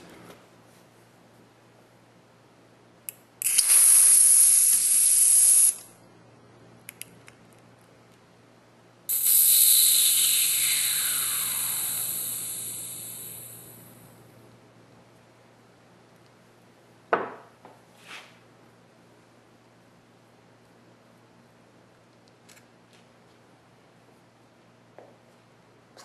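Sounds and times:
compressed air hissing: 3.4s - 5.9s, 9.1s - 14.0s.

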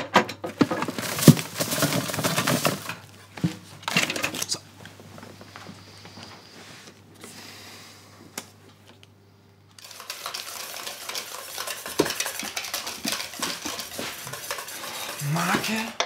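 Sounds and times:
low room hum: 0.0s - 16.0s
utensil stirring in metal bowl: 9.8s - 16.0s.

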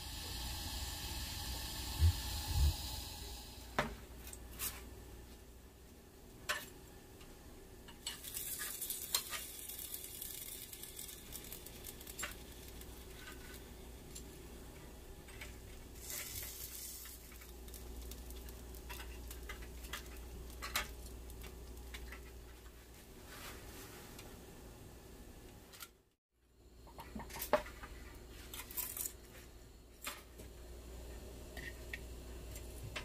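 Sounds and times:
food sizzling: 0.0s - 3.8s, 8.0s - 14.4s, 15.8s - 22.1s.

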